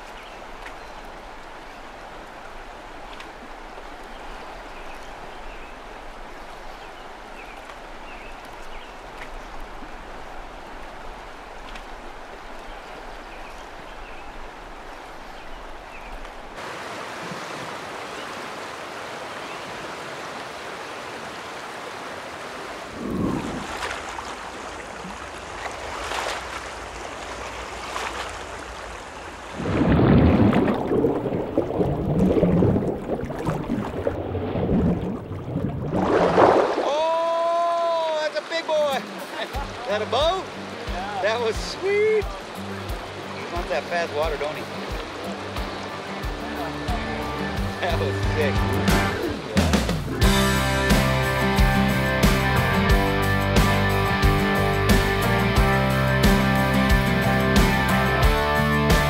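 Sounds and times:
river rushing: 0:00.0 - 0:59.0.

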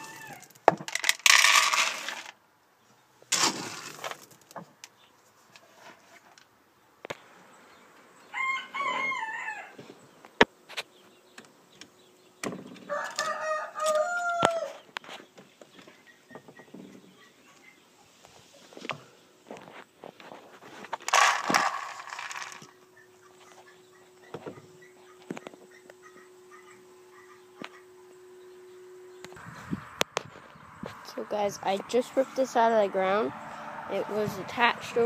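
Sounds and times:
rooster crowing: 0:00.0 - 0:00.5, 0:08.2 - 0:09.8, 0:12.9 - 0:14.8
rustling handling noise: 0:18.2 - 0:22.7.

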